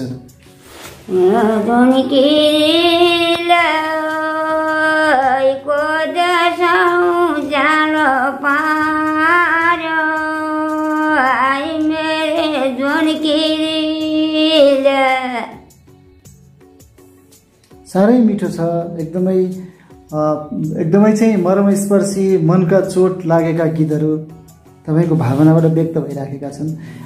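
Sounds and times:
woman singing unaccompanied: 1.1s - 15.7s.

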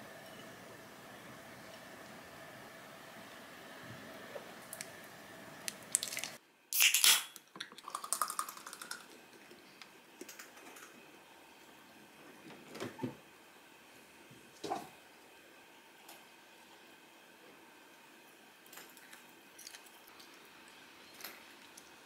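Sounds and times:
beer pouring and fizzing: 5.8s - 6.4s, 7.8s - 9.7s.

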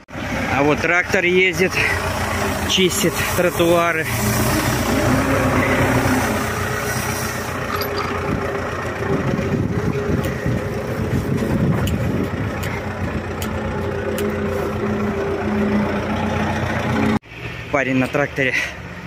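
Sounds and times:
tractor diesel engine running: 0.0s - 17.7s
rotary brush sweeping snow: 1.8s - 7.7s, 14.4s - 15.0s.

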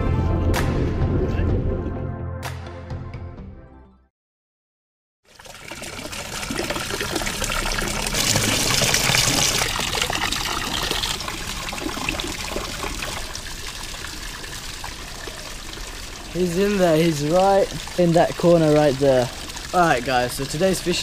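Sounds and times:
water trickling into pond: 5.2s - 21.0s.

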